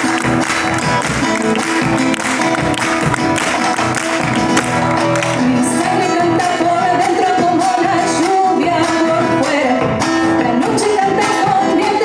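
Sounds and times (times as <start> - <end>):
strummed acoustic guitar: 0.0 - 12.0
woman singing: 5.3 - 12.0.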